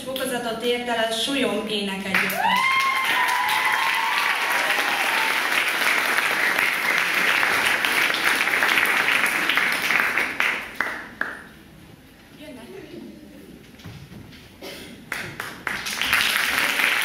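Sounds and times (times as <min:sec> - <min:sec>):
audience applauding: 0:02.2 - 0:11.4, 0:15.1 - 0:17.0.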